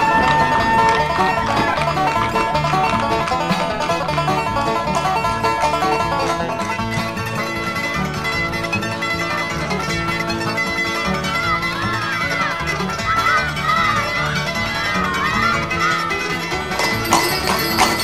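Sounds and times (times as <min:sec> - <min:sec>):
bluegrass string band music: 0:00.0 - 0:18.0
wavering high melody: 0:16.6 - 0:18.0.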